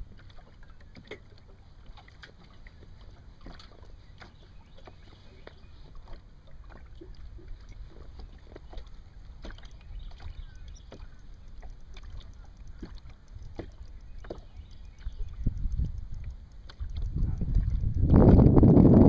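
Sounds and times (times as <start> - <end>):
waves slapping boat hull: 0.0 - 19.0
wind rumble on microphone: 12.0 - 19.0.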